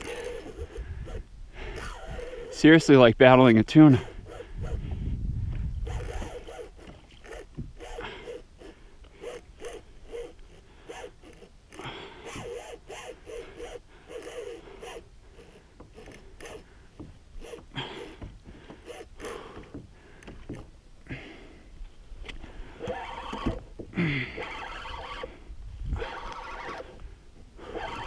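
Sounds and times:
fishing line rasping: 0.0 - 2.9, 3.8 - 5.0, 5.8 - 20.7, 22.2 - 27.0, 27.6 - 28.0
fishing reel drag clicking: 0.0 - 3.0, 3.8 - 4.8, 5.8 - 16.7, 24.3 - 27.0, 27.6 - 28.0.

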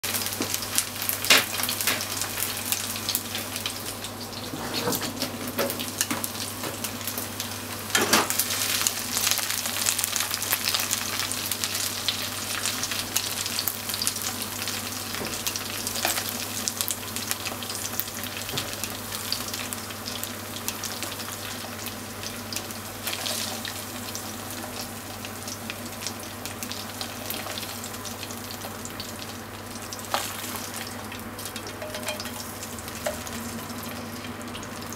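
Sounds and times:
chicken sizzling in hot oil: 0.0 - 34.9.

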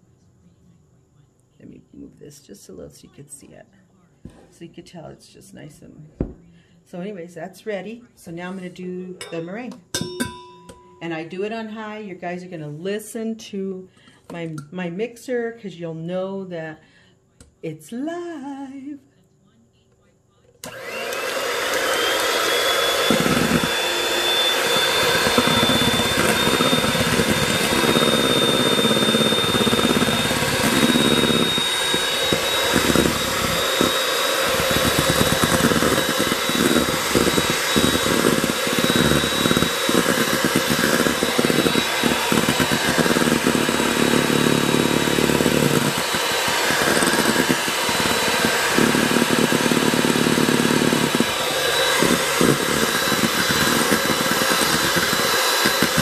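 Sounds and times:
hand mixer whipping egg whites: 20.6 - 56.0.

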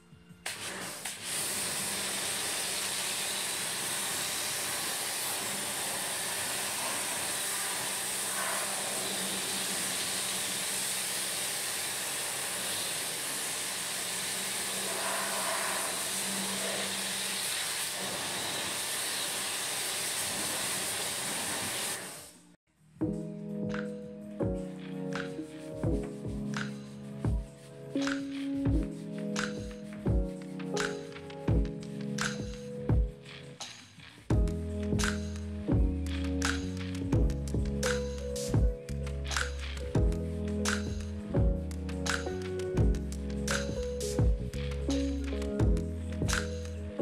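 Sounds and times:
pressure washer spraying water: 0.5 - 22.4.

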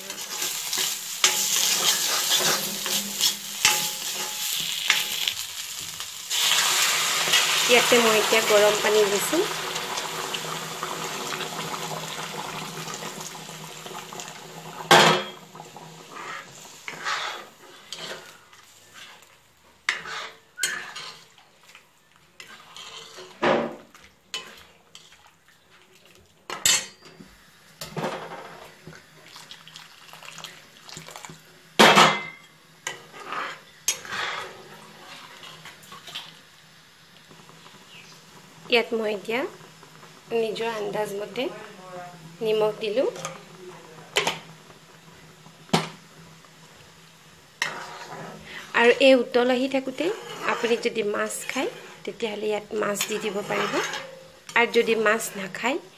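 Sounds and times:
ladle clanking and scraping in wok: 0.0 - 10.4, 14.0 - 21.8, 22.4 - 25.4, 31.8 - 36.4, 47.6 - 55.6
water simmering hiss: 0.0 - 23.4, 27.2 - 31.8, 32.6 - 55.9.

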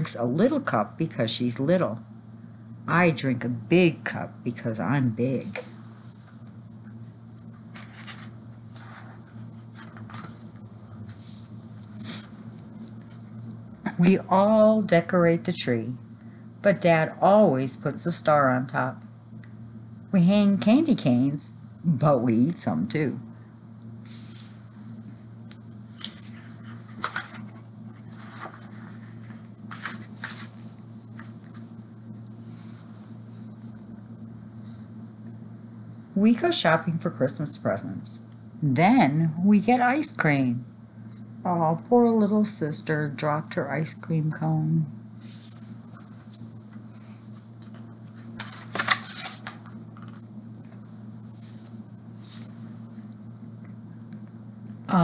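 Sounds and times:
steady low hum: 0.0 - 55.0
book pages rustling: 5.5 - 13.4, 25.9 - 33.4, 45.2 - 53.1
page swishes: 7.4 - 13.2, 25.9 - 31.7, 45.2 - 50.8.

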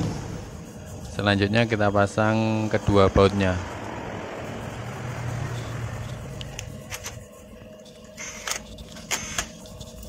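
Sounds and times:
cordless power driver running: 8.2 - 9.6.

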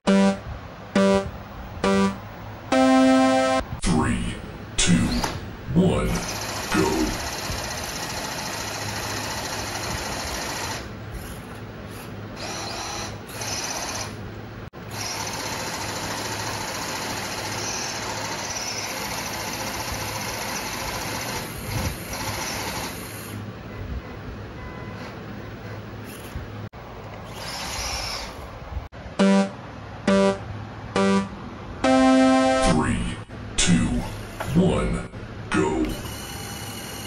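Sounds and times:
electric motors whirring: 6.1 - 14.2, 14.8 - 23.4, 27.1 - 28.6, 35.8 - 37.0.

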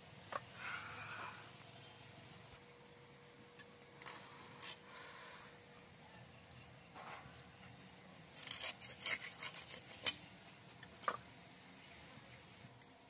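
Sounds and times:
blade scraping and crunching fish: 8.4 - 10.2.

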